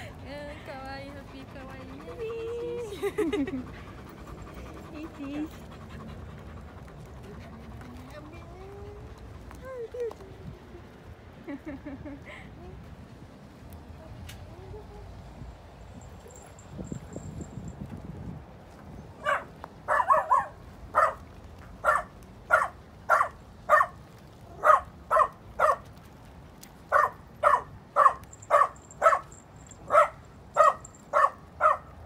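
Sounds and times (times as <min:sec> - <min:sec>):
dog barking: 0:19.2 - 0:21.2, 0:21.8 - 0:24.0, 0:24.6 - 0:25.8, 0:26.9 - 0:29.3, 0:29.9 - 0:32.0.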